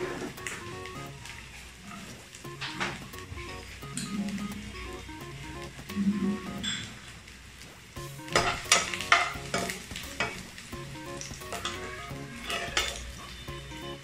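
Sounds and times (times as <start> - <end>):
garlic sizzling in hot oil: 0.0 - 14.0
spoon scraping a pan: 8.3 - 10.5, 11.2 - 13.3.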